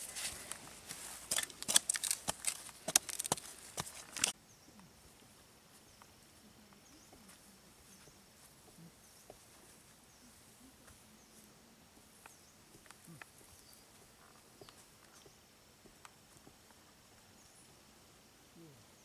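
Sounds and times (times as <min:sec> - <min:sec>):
machete hacking and scraping soil: 0:01.2 - 0:04.4
faint bird chirps: 0:05.8 - 0:19.0.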